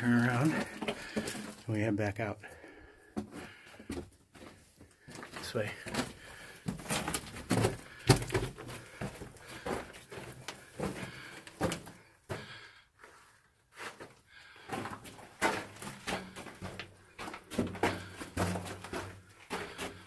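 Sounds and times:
footsteps on loose rock: 0.0 - 1.8, 3.1 - 12.6, 13.9 - 20.0.

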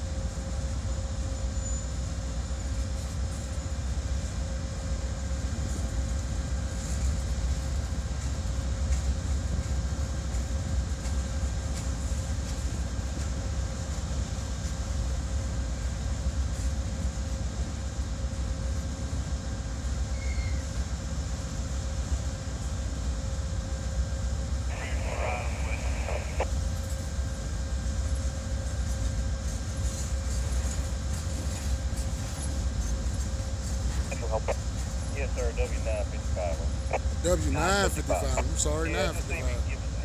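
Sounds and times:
train wheels rumbling on rail: 0.0 - 40.0
constant tone: 24.7 - 26.5, 33.9 - 40.0.

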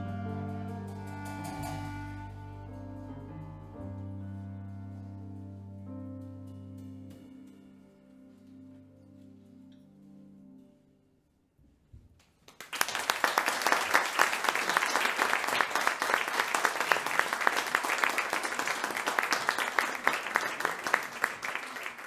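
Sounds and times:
audience applause: 12.4 - 22.0.

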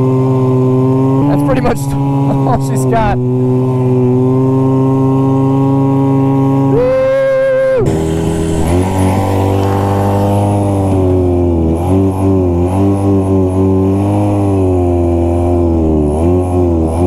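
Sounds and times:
snowmobile two-stroke engine: 0.0 - 17.0.

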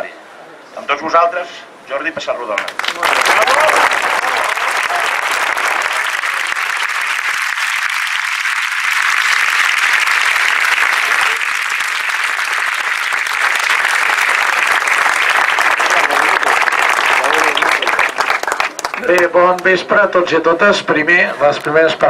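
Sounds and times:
crowd applauding: 2.6 - 19.7.

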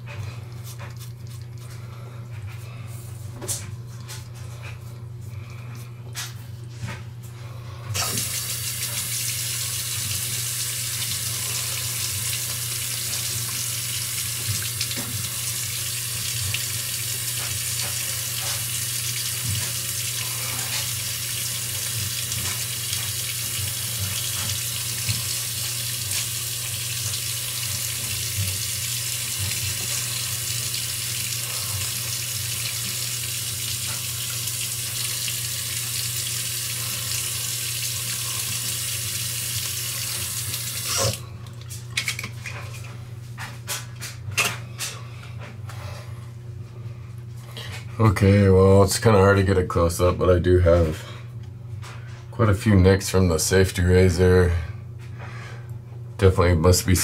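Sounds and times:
tap running into sink: 12.2 - 15.4, 16.2 - 30.9.

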